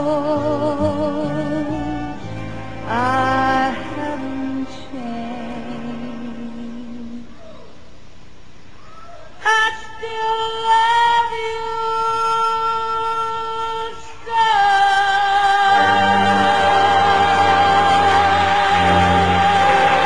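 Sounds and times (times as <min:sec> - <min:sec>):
backing music: 0:00.0 - 0:06.9, 0:15.6 - 0:20.0.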